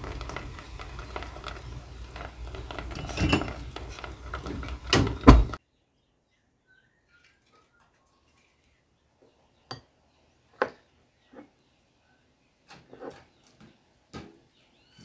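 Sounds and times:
spoon scraping jam in metal pan: 0:00.0 - 0:05.0.

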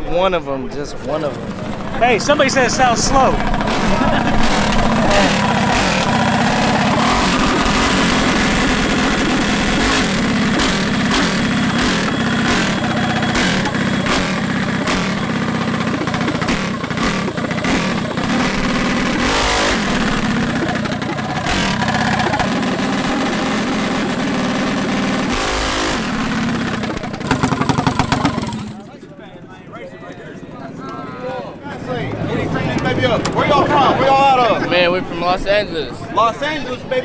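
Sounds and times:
small engine revving: 0:01.1 - 0:28.9.

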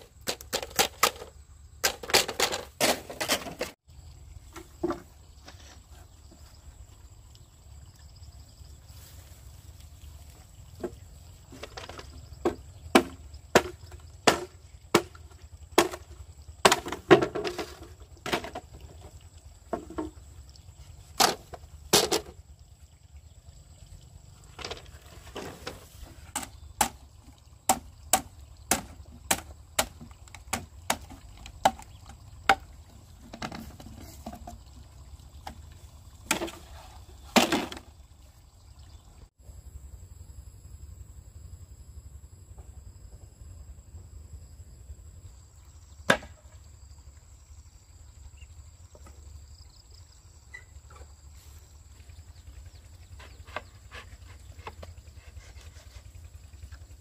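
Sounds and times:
blade chopping bamboo: 0:00.0 - 0:03.8, 0:11.8 - 0:18.6, 0:26.3 - 0:27.1, 0:27.7 - 0:32.7, 0:46.1 - 0:46.4.

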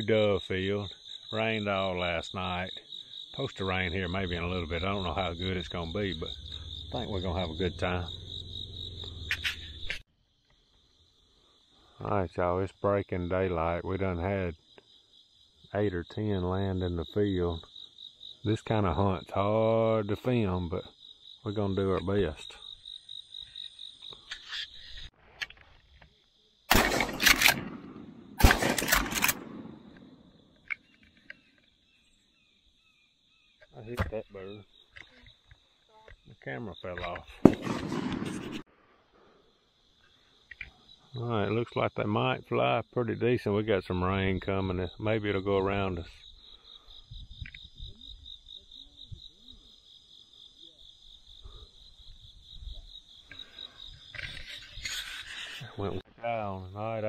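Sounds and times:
cricket trill: 0:00.0 - 0:57.0
shotgun shots: 0:26.7 - 0:30.2, 0:37.4 - 0:38.6.

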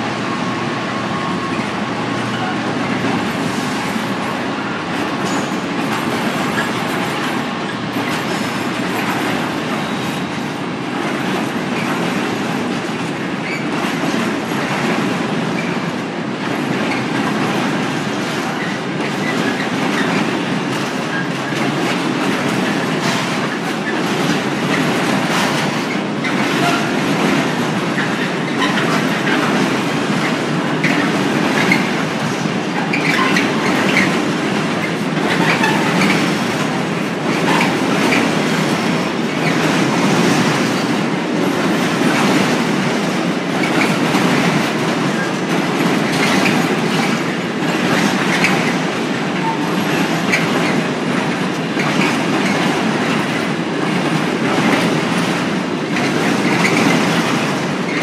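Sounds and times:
freight train rumbling past: 0:00.0 - 0:58.0
wheels clattering over rail joints: 0:11.1 - 0:15.8, 0:16.4 - 0:58.0.

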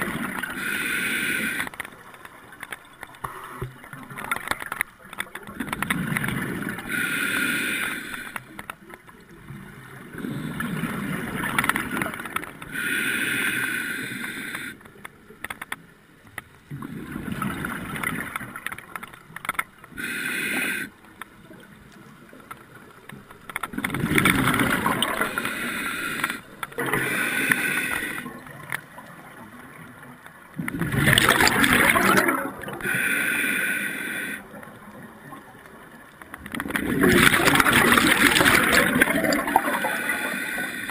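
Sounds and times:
regulator hissing inhale: 0:00.5 - 0:01.7, 0:06.9 - 0:08.5, 0:12.7 - 0:14.8, 0:20.0 - 0:21.0, 0:25.2 - 0:28.4, 0:32.8 - 0:34.6, 0:39.8 - 0:40.9
exhaled bubbles rushing: 0:23.8 - 0:25.4, 0:30.6 - 0:32.8, 0:36.6 - 0:40.2.

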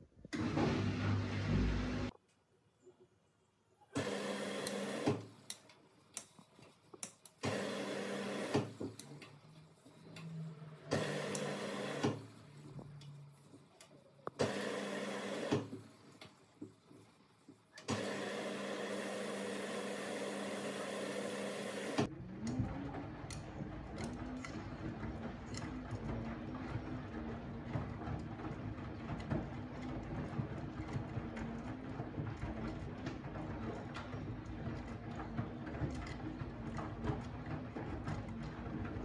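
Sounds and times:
washing machine motor humming: 0:00.3 - 0:02.1, 0:04.0 - 0:05.6, 0:07.4 - 0:39.0
wet laundry tumbling: 0:22.7 - 0:39.0.

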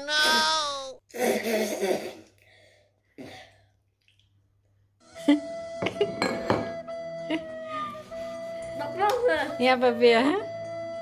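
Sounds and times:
child spitting and spluttering: 0:00.1 - 0:02.4.

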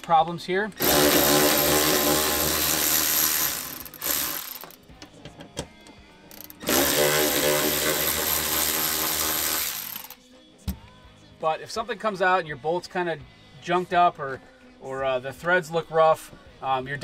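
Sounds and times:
cordless ratchet whirring: 0:00.8 - 0:04.8, 0:06.3 - 0:10.2.

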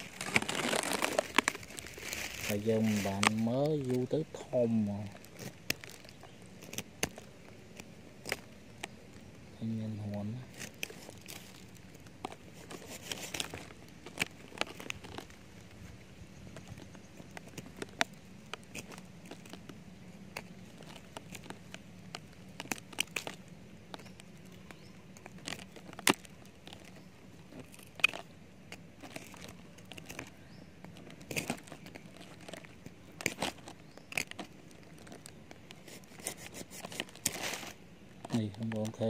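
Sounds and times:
knife scraping bark and wood: 0:00.0 - 0:09.0, 0:10.4 - 0:15.4, 0:16.6 - 0:38.4
wood snapping: 0:05.1 - 0:09.2, 0:16.5 - 0:39.0.

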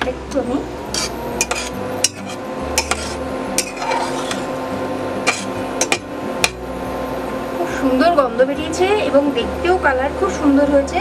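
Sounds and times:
steady hum: 0:00.0 - 0:11.0
metal spatula scraping a pot: 0:00.9 - 0:04.6, 0:05.2 - 0:06.0.

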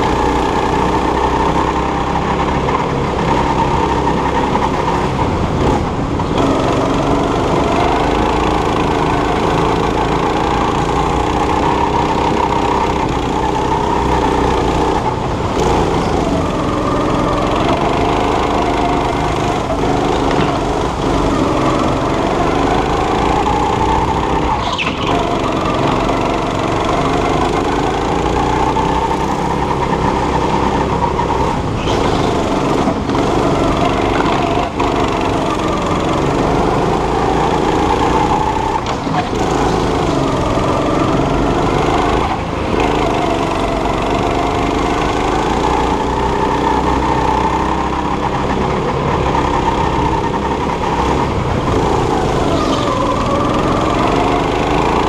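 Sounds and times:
small petrol engine revving: 0:00.0 - 0:55.0.

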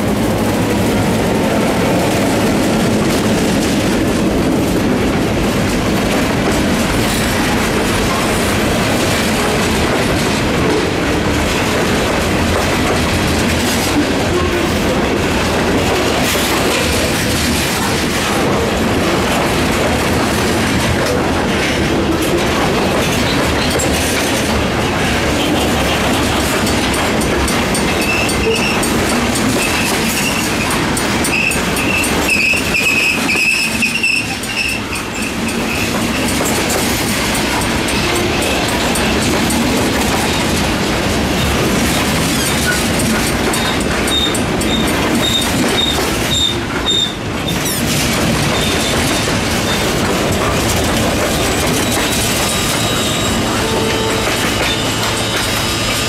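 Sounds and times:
freight train cars rumbling past: 0:00.0 - 0:56.0
train wheel squeal: 0:27.7 - 0:36.6, 0:42.2 - 0:49.9, 0:51.3 - 0:56.0.

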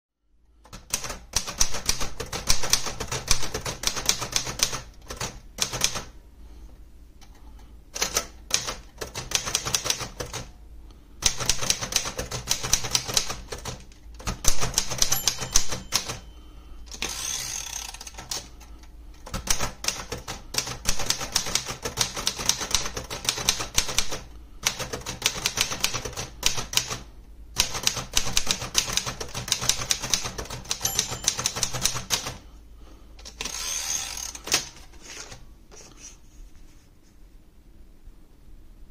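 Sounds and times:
manual typewriter typing: 0:00.7 - 0:06.1, 0:08.0 - 0:10.5, 0:11.2 - 0:16.2, 0:16.9 - 0:18.6, 0:19.2 - 0:32.4
typewriter carriage return: 0:11.2 - 0:16.2, 0:16.9 - 0:18.6, 0:27.6 - 0:32.4.

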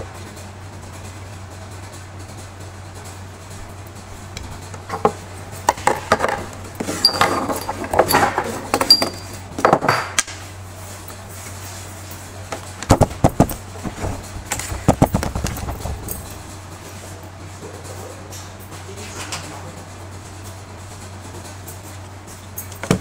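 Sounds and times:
clicks and clinks of motor parts: 0:04.4 - 0:10.3.

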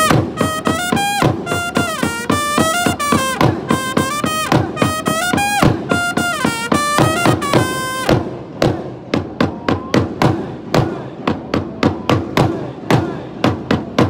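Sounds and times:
trumpet phrase: 0:00.0 - 0:08.1
drum struck with a mallet: 0:00.0 - 0:14.0.

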